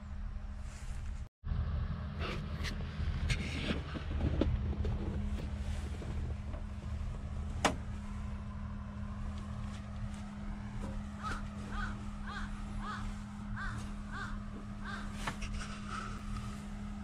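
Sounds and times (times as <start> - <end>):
diesel engine idling: 1.5 - 17.0
crows cawing: 11.0 - 16.1.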